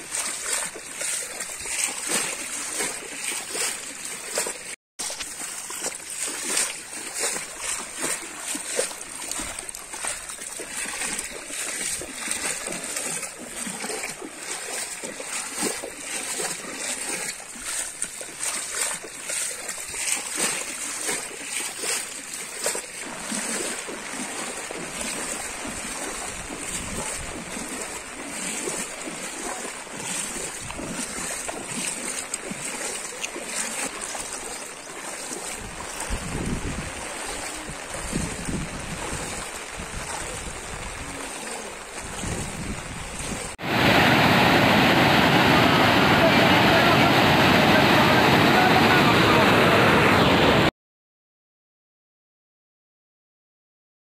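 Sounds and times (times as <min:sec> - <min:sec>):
floodwater rushing: 0:00.0 - 0:50.7
wind buffeting microphone: 0:25.4 - 0:27.9, 0:35.5 - 0:47.9.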